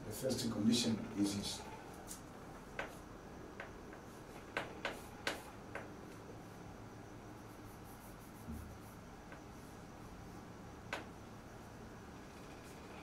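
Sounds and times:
chalk tapping on a blackboard: 2.8 - 3.0, 3.6 - 5.9, 7.5 - 9.7.

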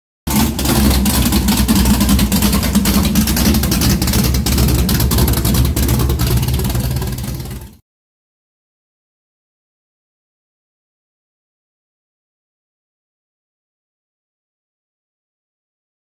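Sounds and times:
car engine running loudly: 0.3 - 7.8
sharp engine cracks: 0.3 - 7.8.

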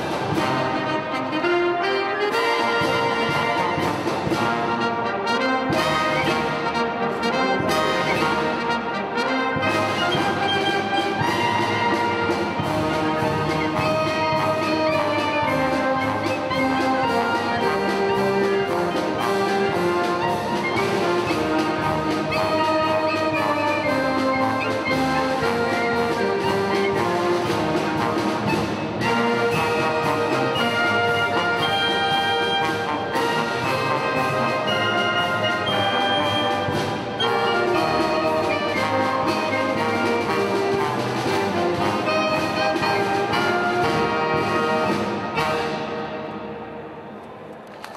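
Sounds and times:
military band playing: 0.0 - 47.9
drum strokes: 9.6 - 46.0.

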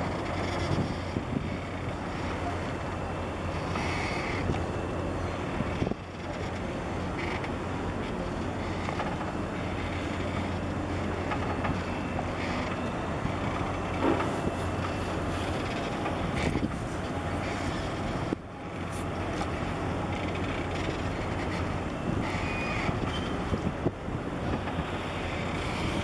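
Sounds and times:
wind on microphone: 0.0 - 8.0, 9.7 - 19.2, 21.0 - 26.0
ship engines droning: 0.0 - 26.0.

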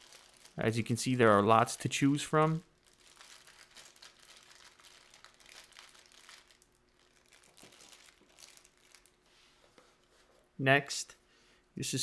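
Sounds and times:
plastic bag crinkling: 0.0 - 9.3.

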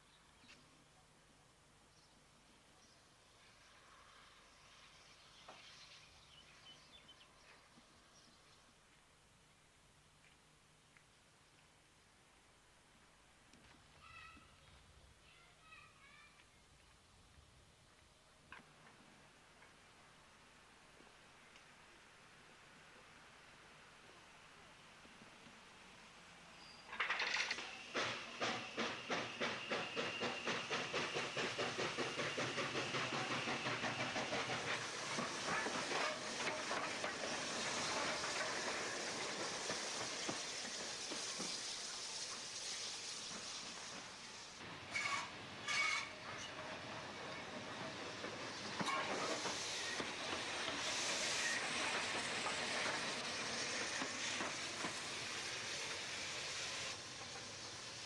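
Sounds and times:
steam locomotive chuffing: 26.9 - 58.0
locomotive wheels knocking: 27.0 - 41.6.

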